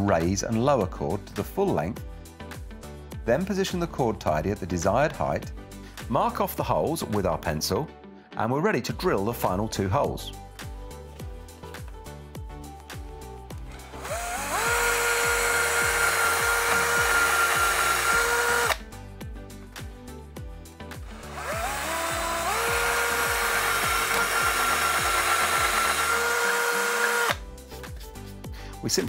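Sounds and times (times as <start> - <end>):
background music: 0.0 - 29.0
cordless drill motor whine: 13.7 - 18.8, 21.0 - 27.4.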